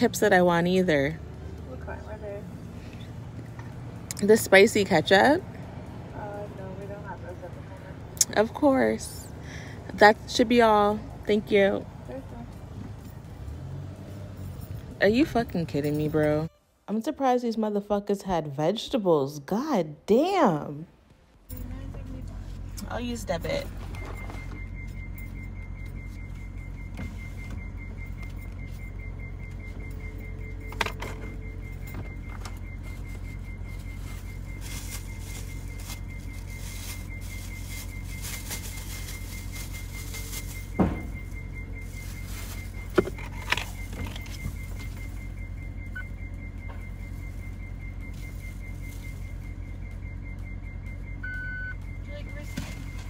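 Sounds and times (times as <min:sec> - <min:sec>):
car engine idling: 0:00.0 - 0:16.8, 0:20.4 - 0:53.0
short beep: 0:22.3 - 0:53.0.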